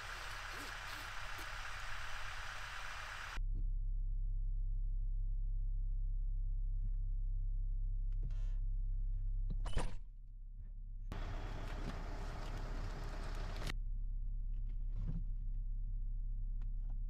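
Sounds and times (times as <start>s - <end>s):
outdoor noise hiss: 0.0s - 3.4s
low mechanical hum: 0.0s - 17.0s.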